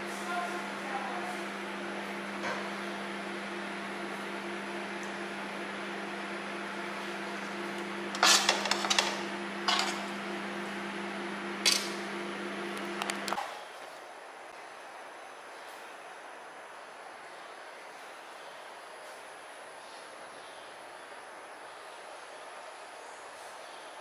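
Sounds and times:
kitchen appliance humming: 0.0 - 13.6
dishes clattering: 8.2 - 10.1.

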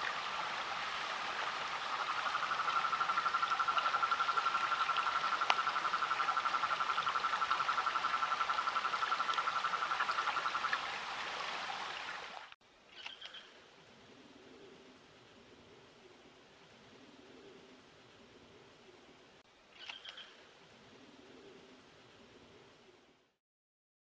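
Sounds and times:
steady background hiss: 0.0 - 23.4
toad trilling: 2.0 - 10.8
sharp click: 19.8 - 20.3.

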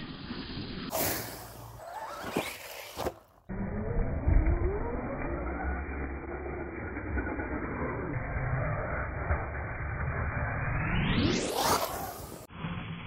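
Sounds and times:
rising whine: 0.0 - 13.0.

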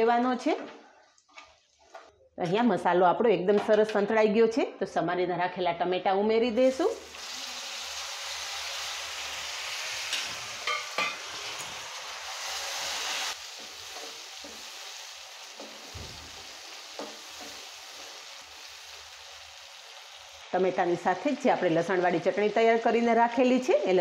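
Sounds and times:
tomatoes sizzling in hot oil: 6.6 - 24.0.

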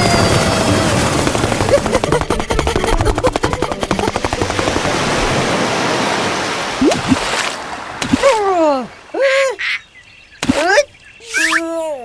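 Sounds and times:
cartoon water splash: 1.8 - 8.6.

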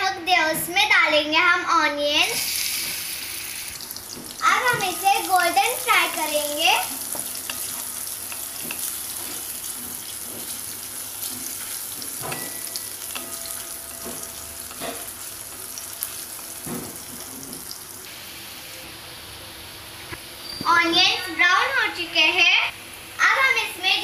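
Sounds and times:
onions sizzling in hot oil: 2.0 - 24.0
spatula scraping pan: 6.0 - 17.7.

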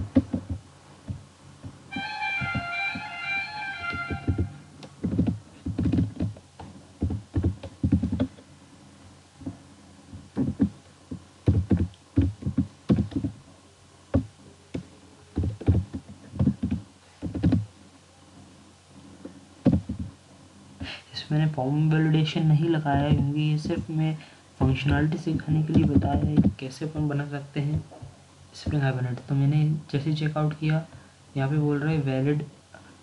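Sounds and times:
computer keyboard typing: 3.8 - 6.4.

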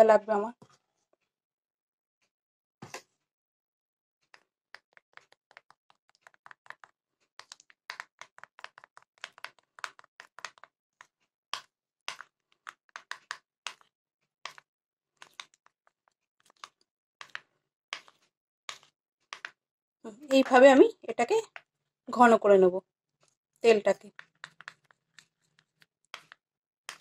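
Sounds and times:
spoon scraping ceramic bowl: 23.9 - 27.0.

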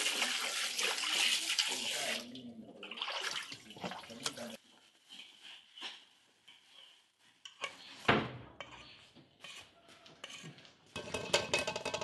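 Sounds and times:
metal spoon scraping steel pan: 8.6 - 12.0.

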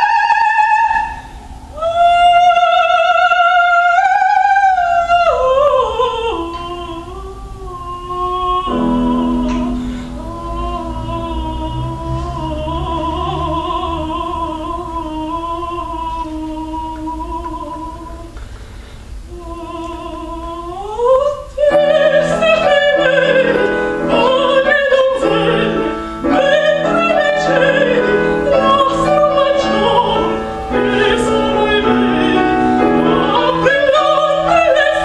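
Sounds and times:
woman singing opera: 0.0 - 18.4, 19.2 - 35.0
piano accompaniment: 8.4 - 16.1, 21.6 - 35.0.

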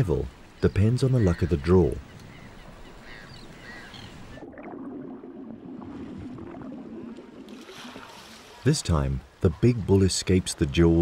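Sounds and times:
faint gull calls: 1.1 - 4.4
muffled seawater sloshing: 2.0 - 10.0.

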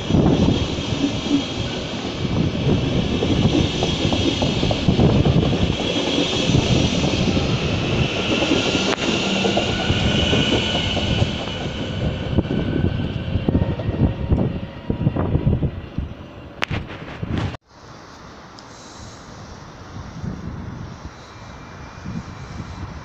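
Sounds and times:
train rumbling on rails: 0.0 - 23.0
train hiss: 17.7 - 23.0.

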